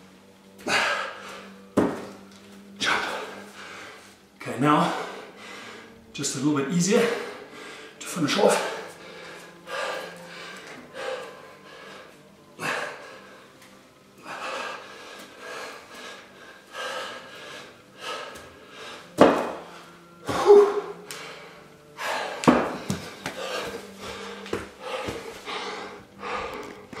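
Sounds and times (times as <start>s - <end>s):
man breathing hard: 0.6s - 6.1s, 6.9s - 27.0s
thumps on the floor: 19.2s - 19.6s.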